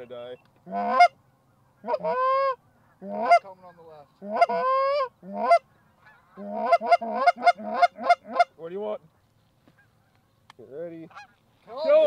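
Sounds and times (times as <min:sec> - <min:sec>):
goose honking: 0:00.6 - 0:08.6, 0:11.0 - 0:12.0.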